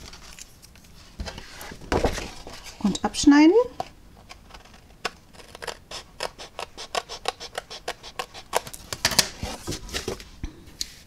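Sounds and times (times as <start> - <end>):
scissors snipping cardstock: 5.4 - 8.8.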